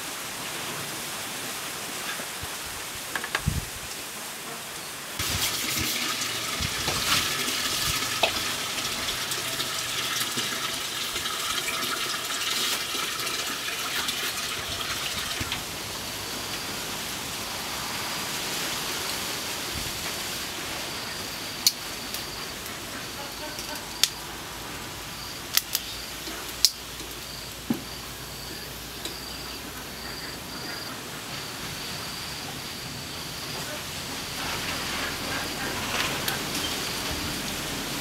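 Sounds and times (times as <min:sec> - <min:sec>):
food sizzling on a grill: 0:05.2 - 0:17.0, 0:31.2 - 0:38.0.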